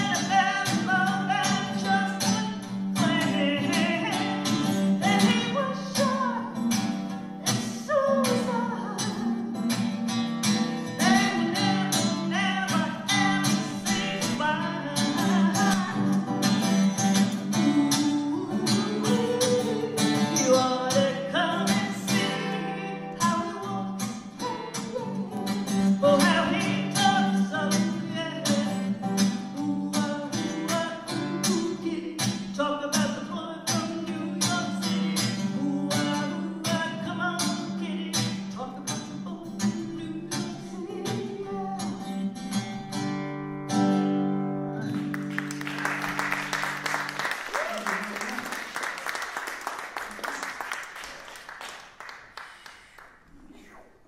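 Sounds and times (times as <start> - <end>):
woman singing: 0.0 - 9.7, 10.8 - 42.6
acoustic guitar strumming: 0.0 - 47.5.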